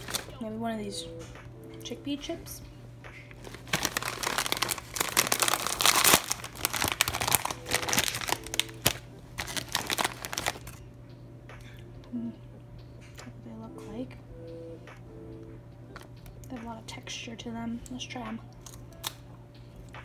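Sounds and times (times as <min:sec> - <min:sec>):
plastic bag crinkling: 0:00.0 - 0:00.4, 0:03.4 - 0:10.8.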